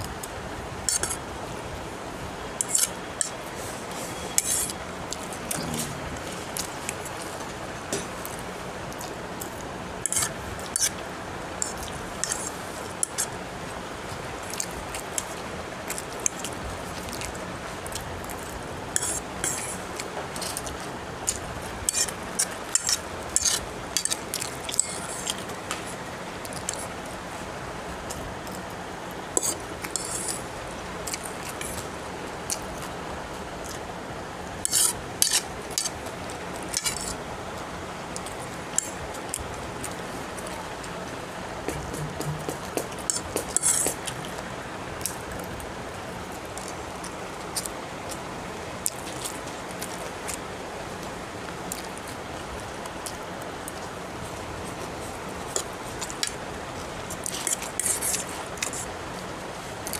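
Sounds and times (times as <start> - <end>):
steady background hiss: 0.0 - 59.9
metal fork scraping on plate: 0.9 - 1.2, 4.2 - 4.7, 10.0 - 10.9, 22.7 - 25.4, 29.4 - 30.4, 34.6 - 35.9.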